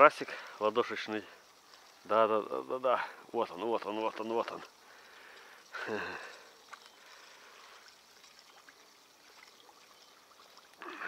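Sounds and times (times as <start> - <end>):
water trickling: 0.0 - 11.0.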